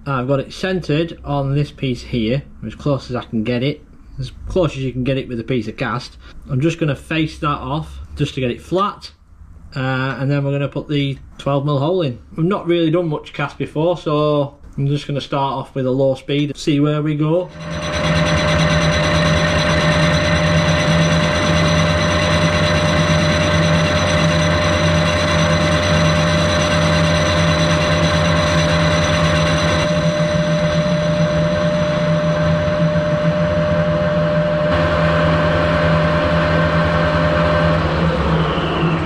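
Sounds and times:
lathe tool scraping metal: 0:17.5 - 0:38.1
metal lathe motor humming: 0:17.5 - 0:39.0.

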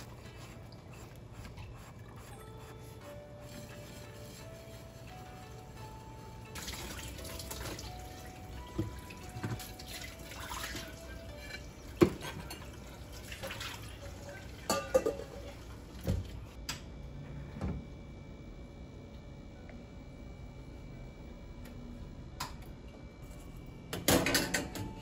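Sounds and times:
water running at a sink: 0:06.5 - 0:16.5
dishes clinking and knocking: 0:11.3 - 0:12.8, 0:14.7 - 0:15.5, 0:24.0 - 0:25.0.

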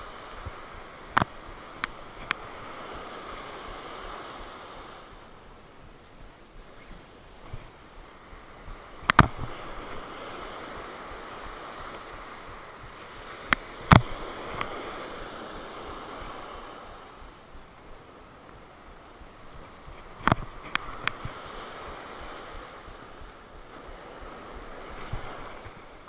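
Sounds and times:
surf washing on shore: 0:00.0 - 0:26.0
wind on microphone: 0:00.0 - 0:26.0.

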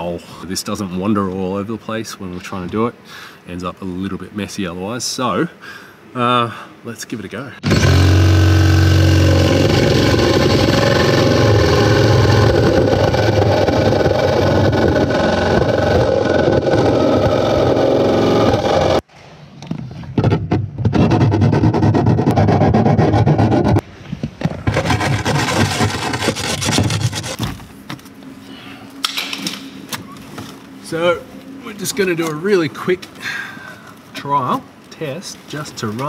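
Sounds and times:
drill motor spinning up: 0:07.6 - 0:19.0
hole saw grinding through metal: 0:07.6 - 0:19.0, 0:24.7 - 0:27.4
scraping metal edge by hand: 0:24.7 - 0:27.4.

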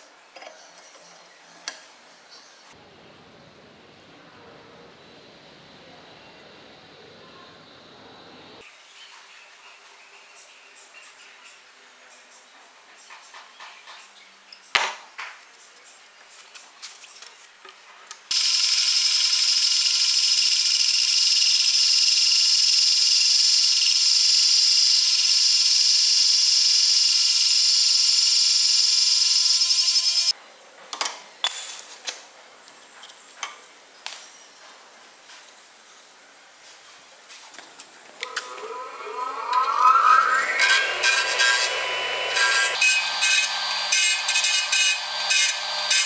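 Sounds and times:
hole saw screeching through steel: 0:38.2 - 0:46.0.

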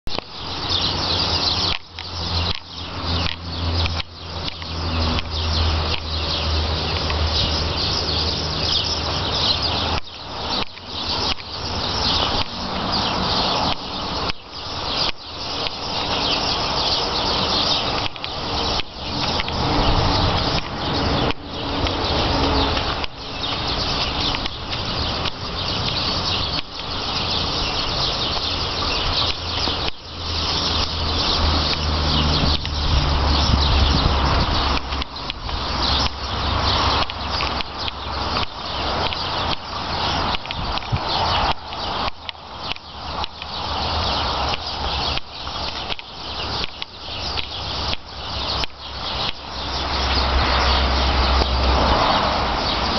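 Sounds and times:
birds chirping and twittering: 0:00.1 - 0:52.9.

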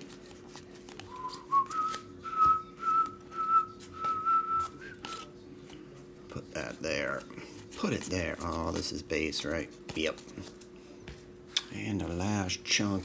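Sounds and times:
trading cards being shuffled: 0:00.0 - 0:05.8, 0:06.6 - 0:11.7
person whistling a long note: 0:01.1 - 0:05.3.

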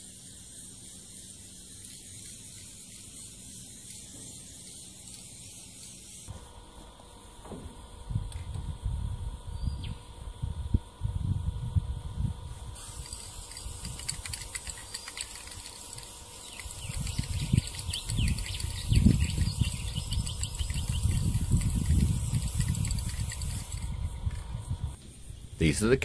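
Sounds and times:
spray paint can hissing: 0:00.0 - 0:06.3, 0:12.5 - 0:24.2
wind rumble on microphone: 0:08.0 - 0:12.8, 0:16.6 - 0:25.5
birds chirping: 0:14.6 - 0:24.4.

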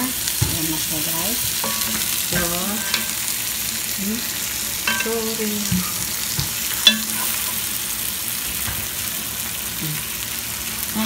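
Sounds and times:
vegetables sizzling in a frying pan: 0:00.0 - 0:11.0
spatula knocking and scraping pan: 0:00.3 - 0:03.3, 0:04.9 - 0:07.6.

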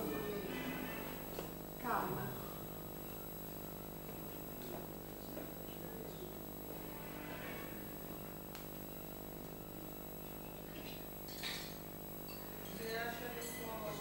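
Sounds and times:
electrical mains hum: 0:00.0 - 0:14.0
utensil clinking against dishes: 0:11.2 - 0:14.0.

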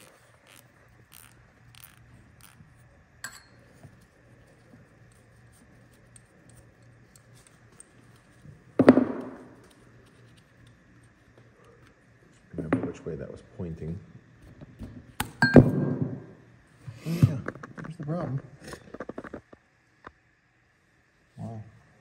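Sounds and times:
ratchet wrench clicks: 0:00.0 - 0:02.6.

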